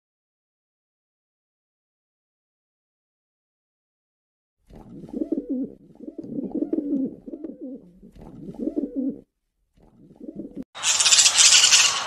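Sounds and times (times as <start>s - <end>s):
pigeon cooing: 4.9s - 10.7s.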